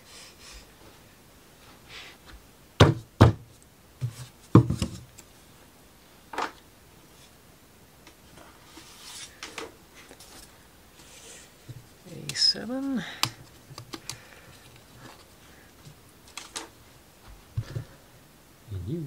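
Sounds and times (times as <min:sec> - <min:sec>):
faint rustling of parts: 0:03.4 - 0:07.4, 0:08.0 - 0:18.1.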